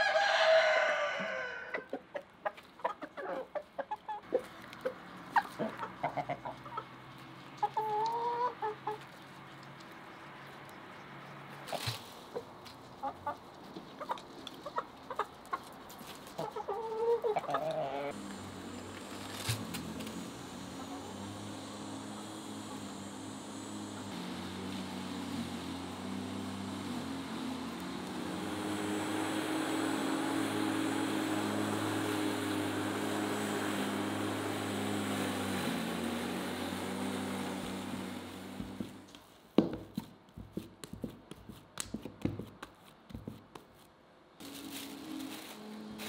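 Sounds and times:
machine humming: 18.1s - 39.1s.

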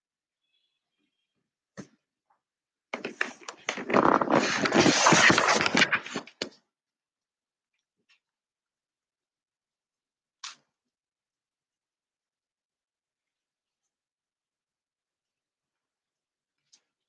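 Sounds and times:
dog rustling and scraping: 3.1s - 6.3s.

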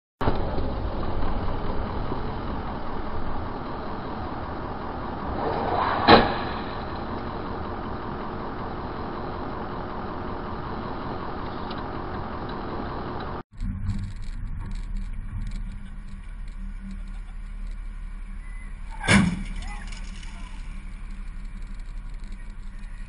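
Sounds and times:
car road and engine noise: 0.2s - 23.0s
loud car crash: 5.2s - 8.8s, 18.9s - 21.1s.

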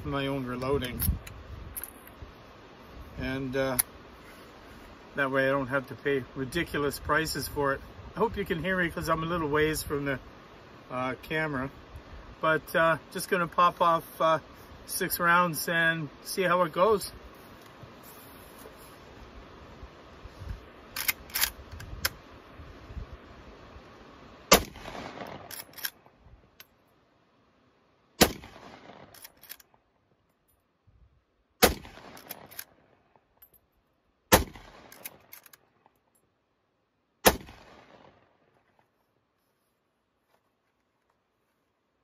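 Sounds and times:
rifle lever clicks: 21.0s - 22.2s, 25.2s - 26.0s, 29.2s - 29.7s
rifle shots: 24.5s - 26.0s, 28.2s - 29.3s, 31.6s - 32.8s, 34.3s - 35.3s, 37.2s - 38.3s.

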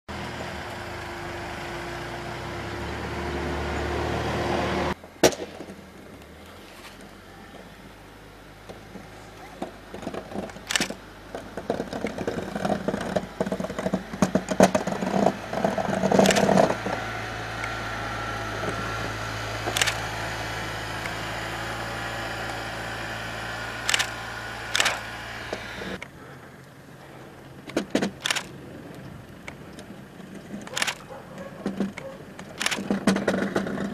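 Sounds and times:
faint whine: 0.1s - 27.7s
atv engine running: 0.1s - 33.9s
sharp clicks: 9.6s - 11.0s, 11.6s - 17.0s, 19.6s - 20.2s, 23.8s - 26.8s, 27.7s - 29.9s, 30.6s - 33.8s.

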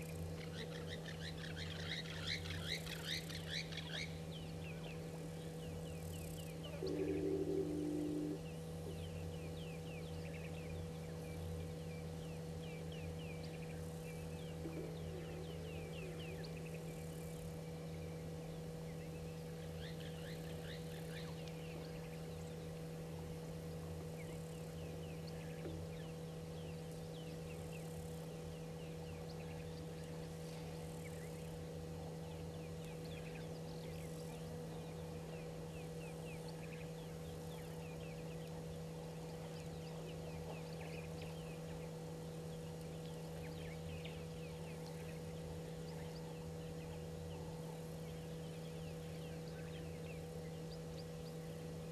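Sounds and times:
steady low hum: 0.0s - 51.9s
birds chirping and calling: 6.5s - 9.1s.

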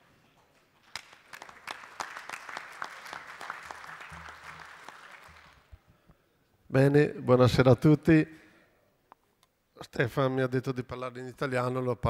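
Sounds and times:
audience applauding: 0.8s - 5.8s.

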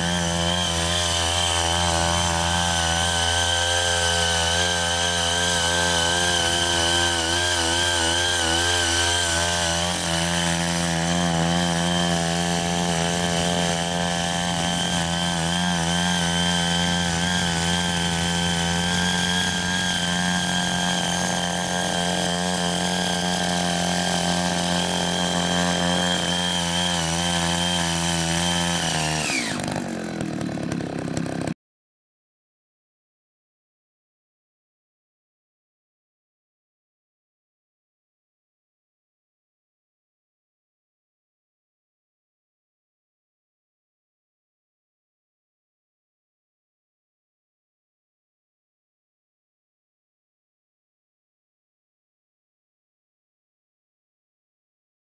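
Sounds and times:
tiller engine running: 0.0s - 31.6s.

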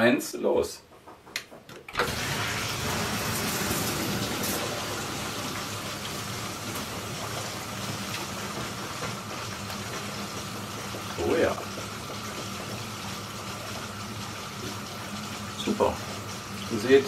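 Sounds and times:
pump low hum: 2.0s - 17.0s
water rushing through pipes: 2.0s - 17.0s.

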